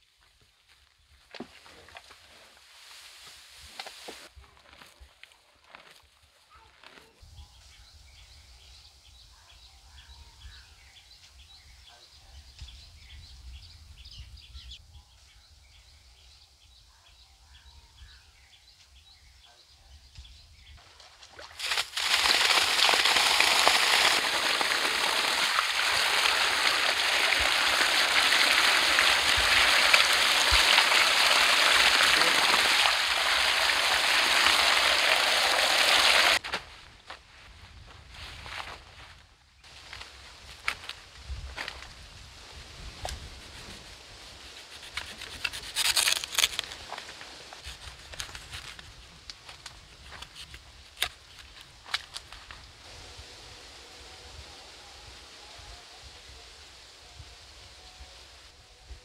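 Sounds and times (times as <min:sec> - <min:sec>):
water gushing from a pipe: 0:21.3 - 0:36.4.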